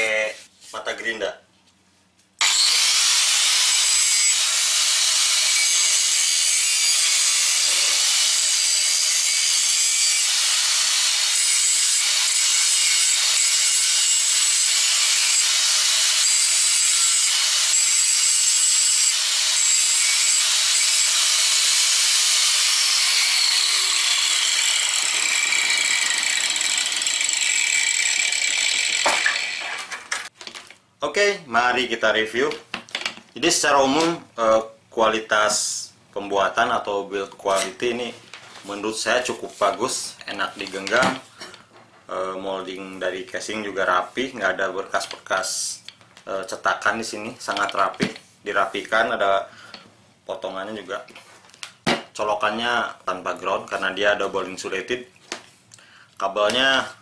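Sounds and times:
angle grinder grinding steel: 2.4 - 30.3.

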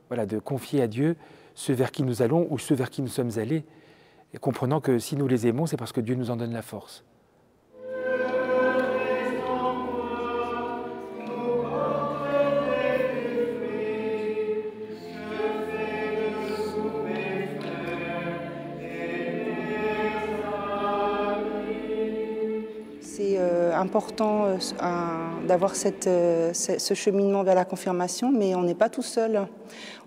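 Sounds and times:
many voices singing a hymn: 7.8 - 26.7.

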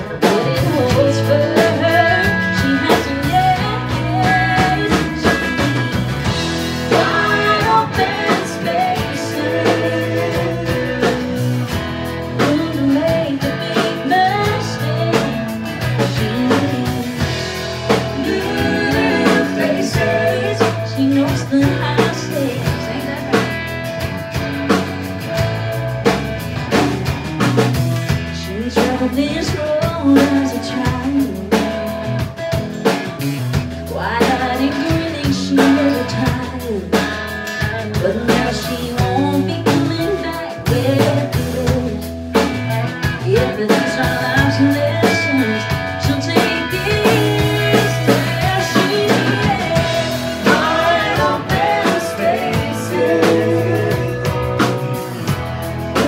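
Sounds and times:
woman singing: 0.0 - 11.6, 12.3 - 23.7, 28.3 - 31.8, 33.8 - 42.2, 43.0 - 54.7
country band playing: 0.0 - 56.0.

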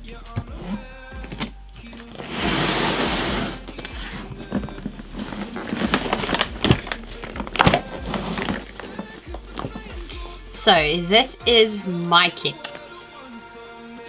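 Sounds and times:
suitcase zipper rasp: 0.4 - 0.8, 2.0 - 10.2
suitcase shell knocks and clatters: 3.7 - 10.1.

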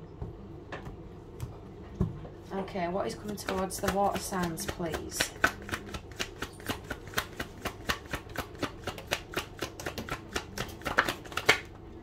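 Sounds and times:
cards being shuffled: 3.2 - 11.7.

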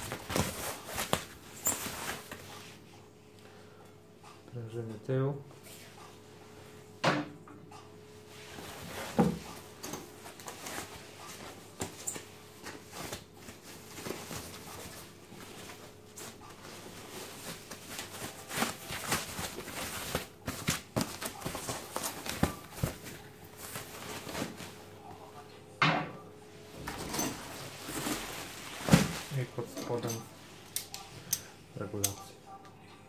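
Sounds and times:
foam packaging rustling: 0.0 - 2.4, 10.2 - 24.9, 27.3 - 29.6.

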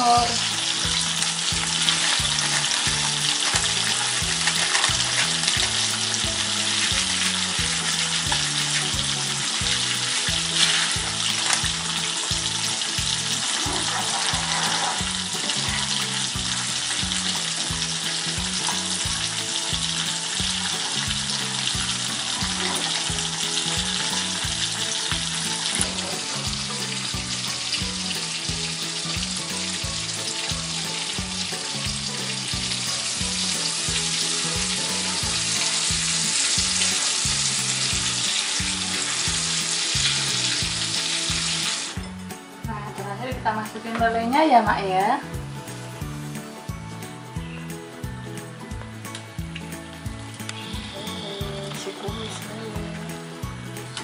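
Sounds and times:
fish sizzling in hot oil: 0.0 - 54.0
spatula stirring sauce in pan: 0.6 - 25.8.

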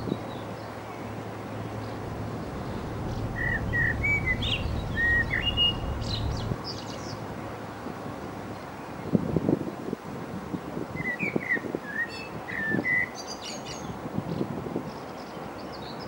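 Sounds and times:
low hum and rumble: 1.0 - 8.5.

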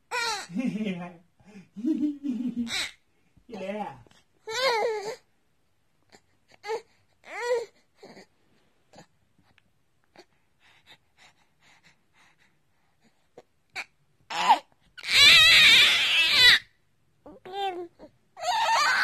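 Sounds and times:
baby squealing laugh: 2.6 - 3.0, 14.3 - 16.6
baby breathing: 10.2 - 13.3
baby cooing: 13.8 - 16.6, 17.3 - 19.0.

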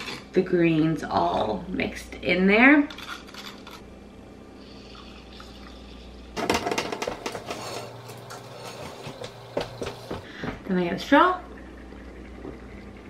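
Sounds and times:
milk frother whirring: 4.9 - 10.3.

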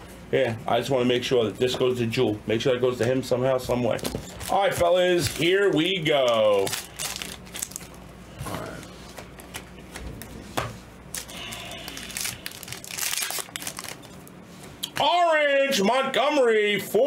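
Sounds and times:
foil wrappers crinkling and tearing: 3.9 - 8.0, 11.1 - 14.3
cards being handled: 8.6 - 15.0.

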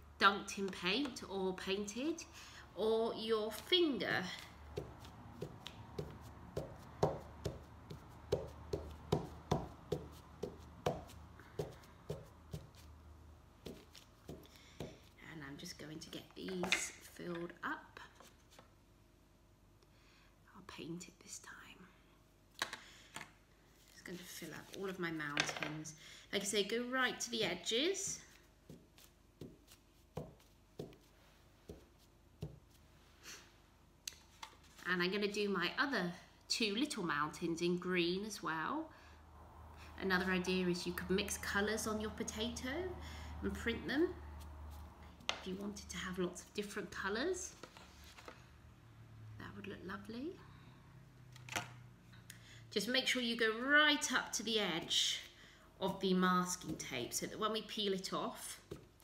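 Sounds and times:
potato tapping on fabric: 4.7 - 12.9, 13.6 - 15.1.

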